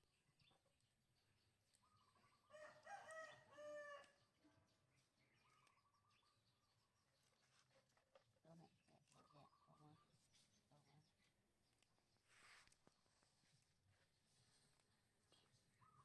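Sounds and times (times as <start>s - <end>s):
rooster crowing: 2.5s - 4.2s.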